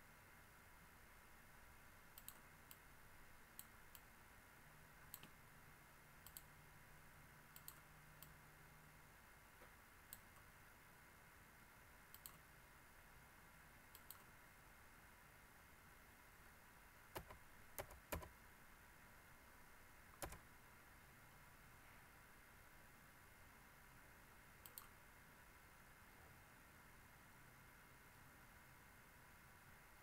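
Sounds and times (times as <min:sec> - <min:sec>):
steady low hiss: 0:00.0 - 0:30.0
computer mouse clicks: 0:02.1 - 0:02.9, 0:03.6 - 0:04.1, 0:05.1 - 0:05.4, 0:06.2 - 0:06.5, 0:07.5 - 0:08.4, 0:09.6 - 0:10.5, 0:12.1 - 0:12.5, 0:13.9 - 0:14.3, 0:17.2 - 0:18.3, 0:20.2 - 0:20.4, 0:24.6 - 0:25.0.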